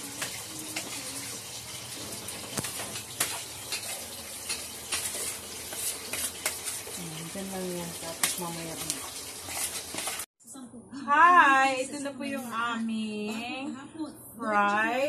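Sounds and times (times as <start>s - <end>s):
kitchen utensils and dishes clattering: 0.0s - 10.3s.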